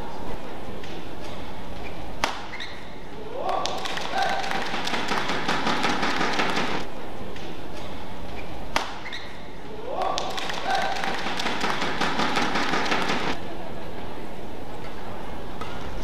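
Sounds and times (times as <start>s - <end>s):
racket striking shuttlecock: 0.8s - 13.4s
scattered clapping: 3.4s - 6.9s, 10.0s - 13.4s.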